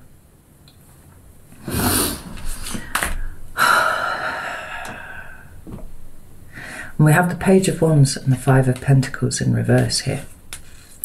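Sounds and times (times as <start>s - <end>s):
woman breathing in through nose: 1.6s - 5.6s, 6.5s - 7.0s
woman exhaling: 1.6s - 5.6s.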